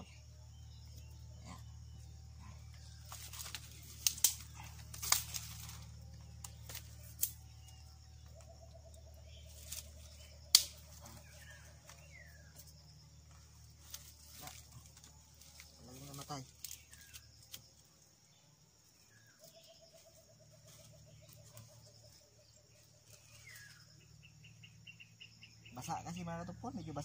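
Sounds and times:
dry twigs snapping: 2.7 - 8.6, 9.5 - 17.8.

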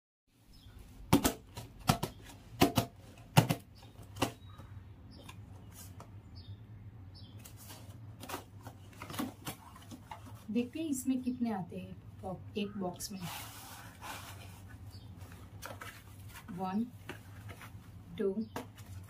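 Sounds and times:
knocks on cardboard box: 1.1 - 4.4
scrapes on cardboard: 13.1 - 17.8.

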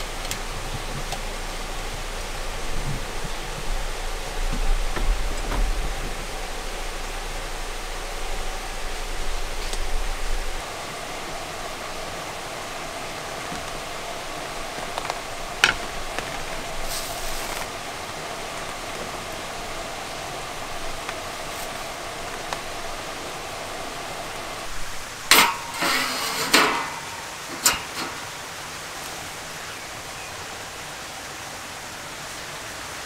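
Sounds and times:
faint hum: 0.0 - 32.8
steady ambient hiss: 0.0 - 33.0
knocks and clatters: 25.2 - 29.2.

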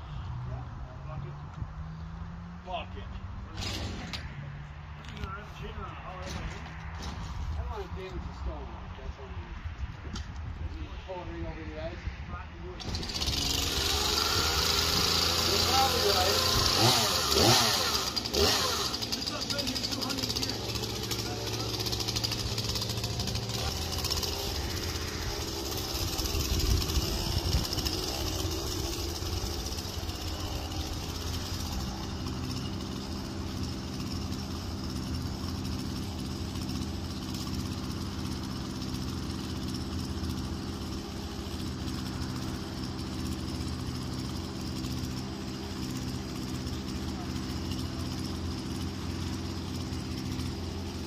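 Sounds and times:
engine idling: 12.7 - 51.0.

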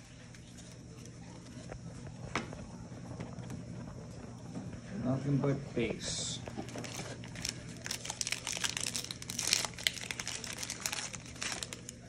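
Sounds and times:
plastic wrapper crinkling: 6.4 - 12.0.

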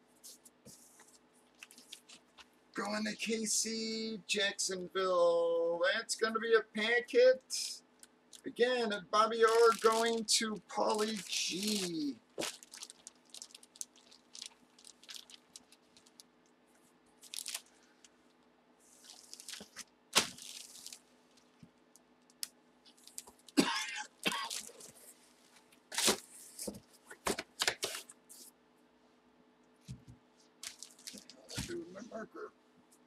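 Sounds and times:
plastic bag crinkling: 1.5 - 2.4, 9.4 - 16.4, 17.2 - 21.6, 22.4 - 26.8, 30.6 - 31.8.

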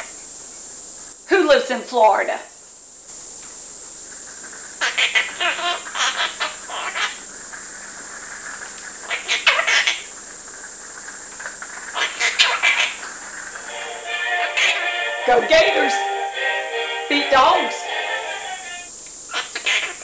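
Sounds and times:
parrot chattering and squawking: 4.4 - 10.2, 11.0 - 13.7, 18.6 - 20.0.

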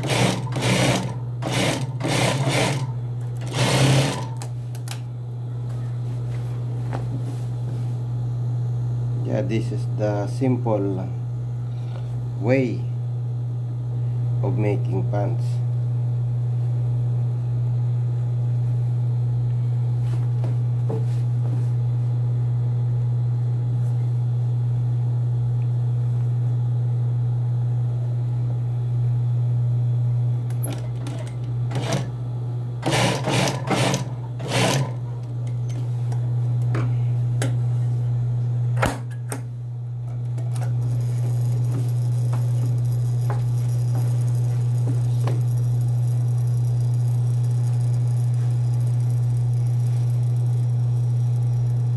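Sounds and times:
loud bursts of stitching: 0.0 - 4.4, 32.8 - 35.0
sewing machine motor humming: 0.0 - 4.9, 30.5 - 32.2, 32.8 - 36.2, 40.4 - 51.9.

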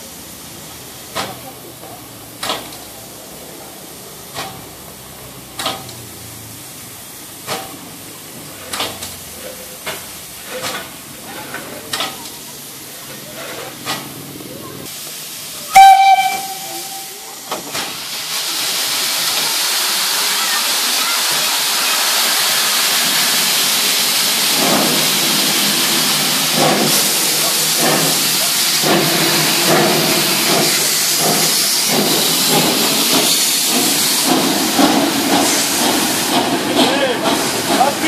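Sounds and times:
steam hissing: 0.0 - 38.0
steam locomotive whistle: 15.7 - 17.4
locomotive exhaust chuffs: 22.8 - 38.0.

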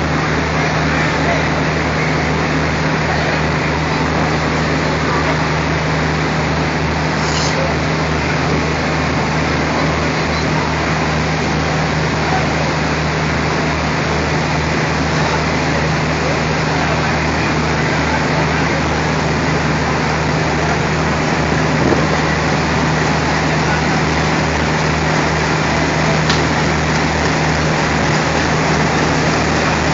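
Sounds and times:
diesel locomotive engine droning: 0.0 - 29.9
wash of noise: 0.0 - 29.9.

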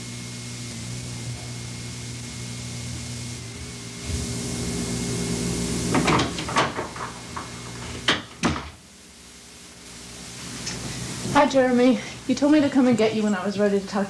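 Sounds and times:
steady hum: 0.0 - 14.0
tape hiss: 0.0 - 14.0.

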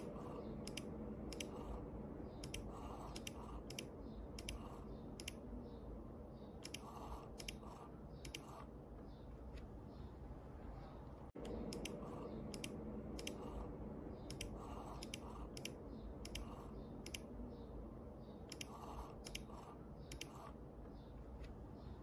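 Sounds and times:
sharp double clicks: 0.0 - 1.8, 2.4 - 5.4, 6.6 - 8.7, 11.4 - 13.6, 14.2 - 17.3, 18.5 - 20.5
low steady hum: 0.0 - 22.0.

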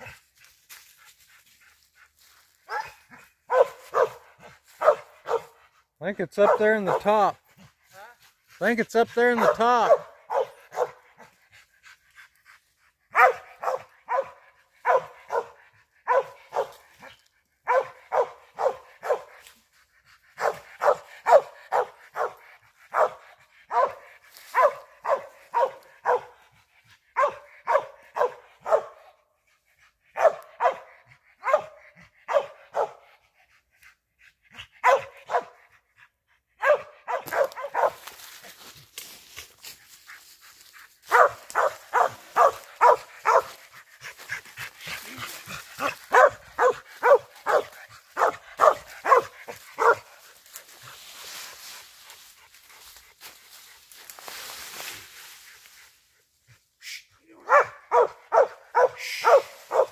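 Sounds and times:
dog barking: 2.6 - 5.6, 6.4 - 7.4, 9.2 - 11.4, 13.1 - 19.4, 20.3 - 26.4, 27.2 - 29.2, 30.1 - 33.1, 34.8 - 35.6, 36.6 - 38.2, 41.1 - 43.7, 45.8 - 50.2, 57.3 - 59.9.

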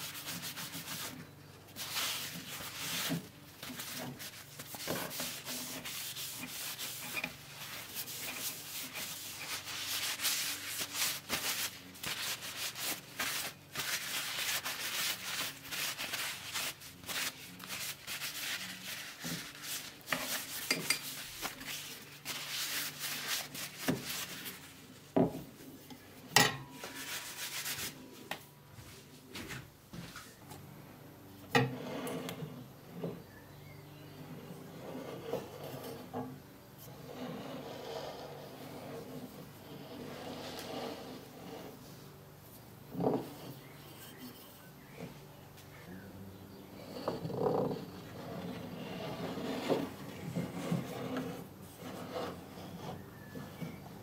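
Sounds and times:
cloth rubbing wood: 0.0 - 25.1, 26.8 - 29.5, 47.2 - 53.3.

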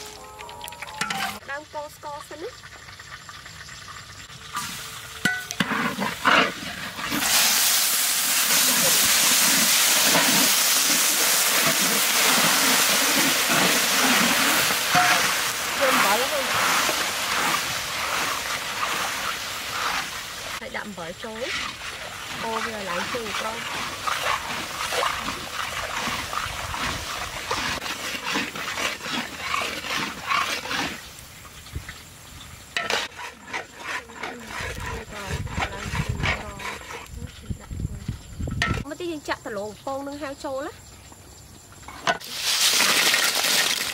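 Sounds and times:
syrup boiling and sizzling in wok: 1.0 - 39.1, 41.9 - 43.9
metal spatula stirring: 5.2 - 7.4, 8.4 - 20.6, 21.4 - 31.0, 32.8 - 37.0.

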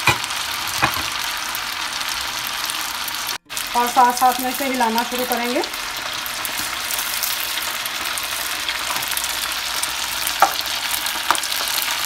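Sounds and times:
pasta sizzling in hot oil: 0.0 - 12.0.

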